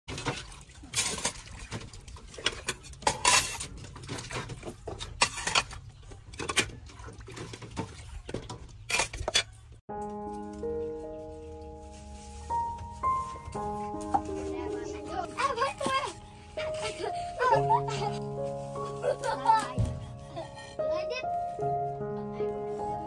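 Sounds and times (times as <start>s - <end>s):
dishes and pots clattering: 0.1s - 9.7s
music: 9.9s - 23.0s.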